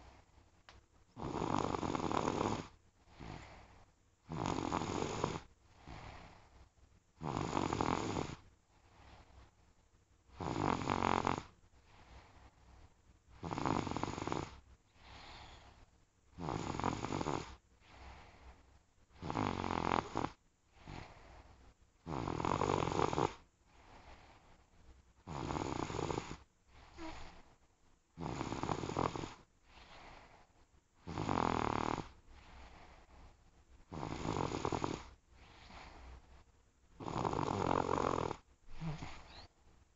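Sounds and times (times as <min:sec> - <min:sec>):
quiet breathing: 0:00.0 - 0:39.9
loud snoring: 0:01.2 - 0:03.6, 0:04.3 - 0:06.2, 0:07.2 - 0:08.4, 0:10.3 - 0:11.5, 0:13.4 - 0:14.6, 0:16.4 - 0:17.6, 0:19.2 - 0:21.1, 0:22.0 - 0:23.4, 0:25.2 - 0:26.4, 0:28.2 - 0:29.4, 0:31.0 - 0:32.2, 0:33.9 - 0:35.1, 0:37.0 - 0:39.5.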